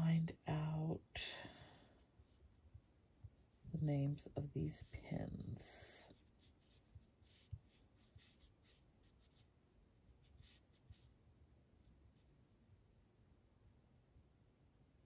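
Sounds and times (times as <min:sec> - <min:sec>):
scratchy hand movements: 0:01.2 - 0:11.2.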